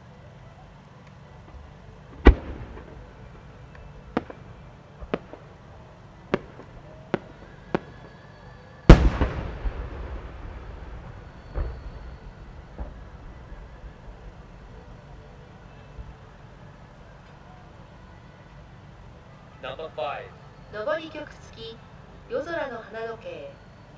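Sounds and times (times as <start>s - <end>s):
firework bang: 2.1s - 3.2s, 8.9s - 14.5s
firework boom echoing: 2.2s - 3.1s, 8.9s - 14.9s
firework small cracks: 8.9s - 13.6s
thud: 11.4s - 13.1s.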